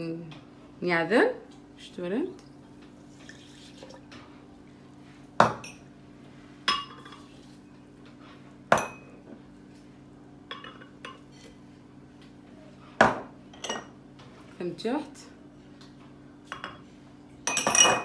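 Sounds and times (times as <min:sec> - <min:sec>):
low steady hum: 0:00.0 - 0:18.0
glass cup clinking on glass jug: 0:17.4 - 0:18.0.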